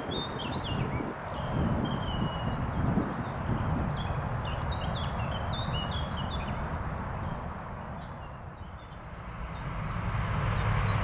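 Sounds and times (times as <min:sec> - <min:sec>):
small birds singing: 0:00.0 - 0:11.0
wind buffeting microphone: 0:00.0 - 0:11.0.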